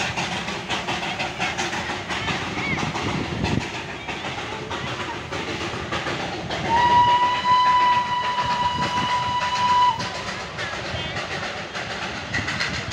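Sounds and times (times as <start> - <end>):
train rumbling and clattering: 0.0 - 12.9
train whistle: 6.6 - 10.3.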